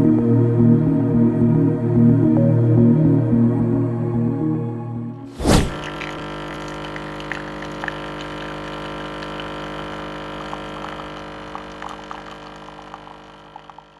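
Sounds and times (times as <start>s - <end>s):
coffee machine pump humming: 5.7s - 13.9s
coffee streaming into mug: 5.7s - 13.9s.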